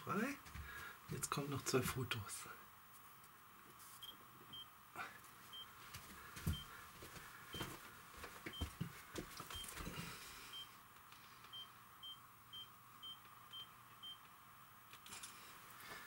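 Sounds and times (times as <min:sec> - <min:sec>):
footsteps thumps and rustles: 0:05.9 - 0:10.1.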